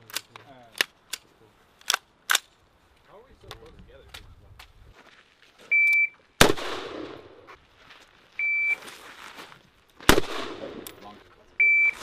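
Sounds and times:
rifle shot echoing: 6.4 - 7.4, 10.1 - 11.0
shot timer start beep: 11.6 - 12.0.

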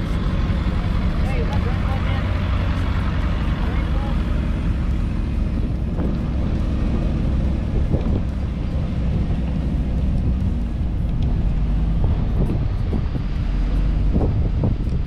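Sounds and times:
low road rumble: 0.0 - 15.0
wind buffeting microphone: 0.0 - 15.0.

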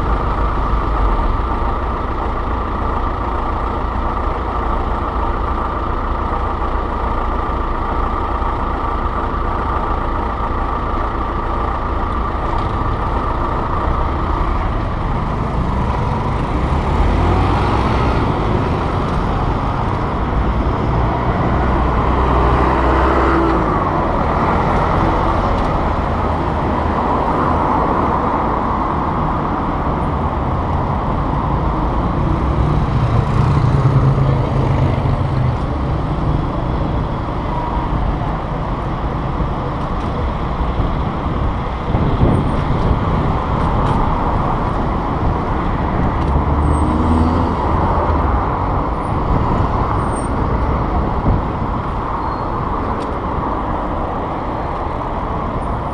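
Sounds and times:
city street traffic: 0.0 - 55.9
vehicle engine passing: 15.4 - 26.0.

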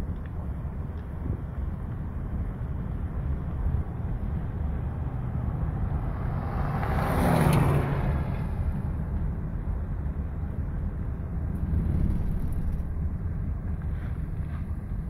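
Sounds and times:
vehicle driving along road: 0.0 - 15.0
pickup truck passing: 3.4 - 9.7.

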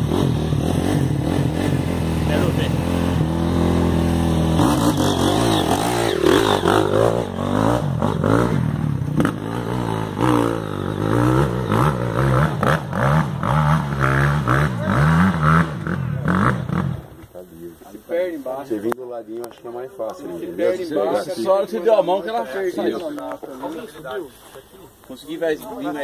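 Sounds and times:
motorcycle engine revving: 0.0 - 17.4.

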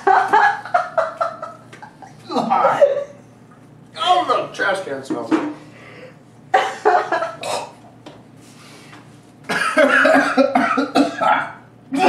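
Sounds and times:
man coughing: 6.6 - 7.8, 9.5 - 12.0
man retching: 7.3 - 7.8, 9.5 - 12.0.

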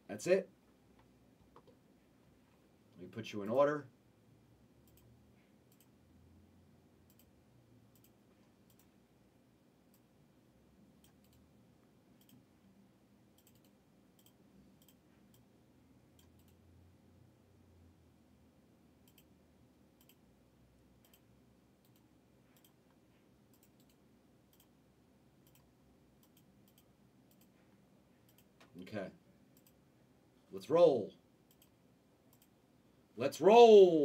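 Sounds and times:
mouse and keyboard clicks: 13.4 - 15.5.

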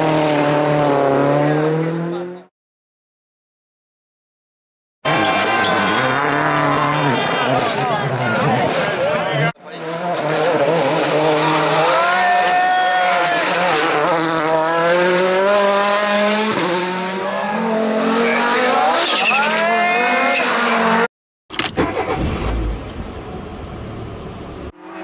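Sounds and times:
rally car engine revving: 0.0 - 2.5, 5.1 - 21.1.

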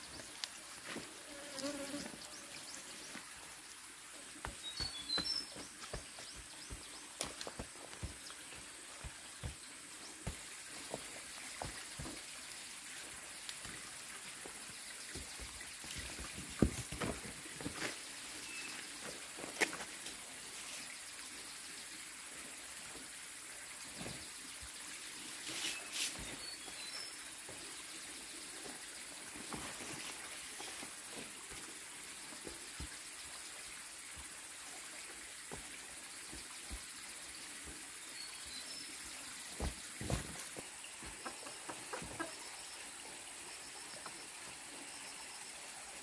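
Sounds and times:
fly buzzing past: 1.2 - 2.6.

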